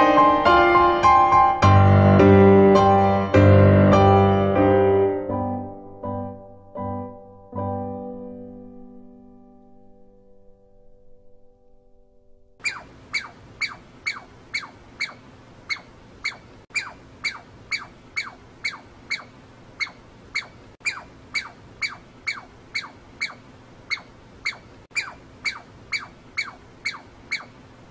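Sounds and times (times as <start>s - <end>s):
squirrel chirping: 12.6s - 27.9s.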